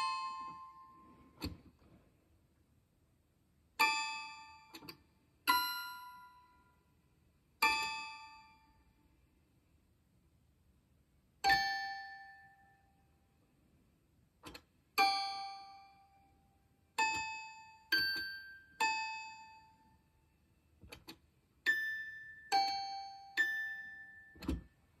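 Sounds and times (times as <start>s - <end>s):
toy piano notes: 0.0s - 1.6s, 3.8s - 6.6s, 7.6s - 8.7s, 11.4s - 12.9s, 14.5s - 16.4s, 17.0s - 20.0s, 20.9s - 24.7s.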